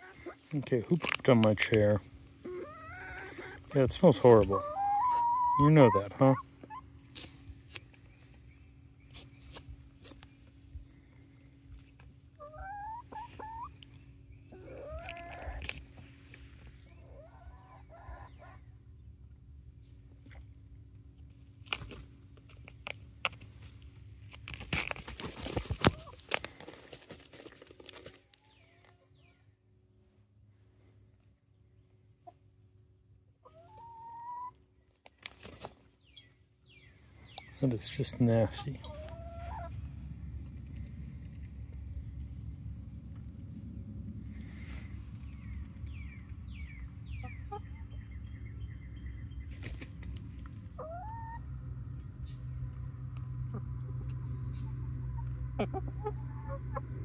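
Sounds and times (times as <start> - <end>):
hens calling: 0.0 - 0.6, 1.5 - 7.4, 12.3 - 18.8, 33.4 - 34.6, 37.4 - 39.8, 50.7 - 51.7, 53.5 - 57.0
wings rustling and flapping: 24.5 - 28.3, 35.1 - 35.9, 49.5 - 50.5.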